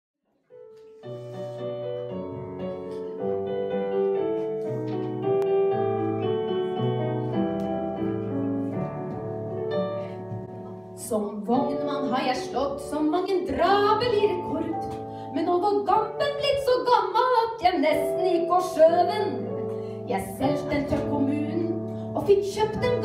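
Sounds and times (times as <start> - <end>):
piano chords: 0.4 - 23.0.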